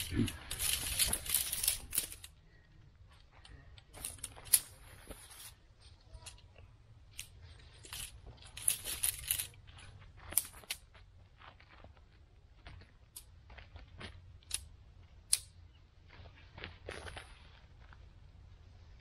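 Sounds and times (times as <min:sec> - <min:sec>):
metal tent poles clinking: 0:00.0 - 0:02.3, 0:04.0 - 0:05.6, 0:07.1 - 0:09.6.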